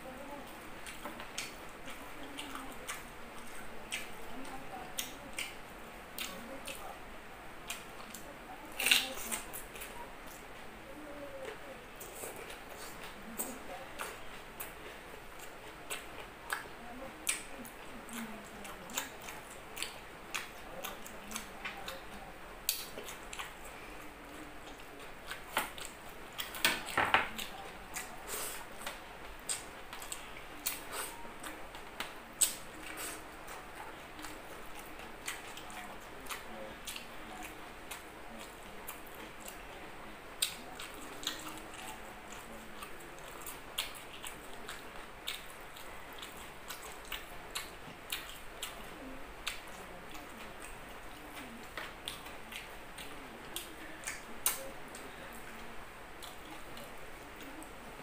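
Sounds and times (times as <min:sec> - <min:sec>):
chewing and lip smacking: 0:00.4 - 0:06.8, 0:07.6 - 0:10.7, 0:11.3 - 0:58.0.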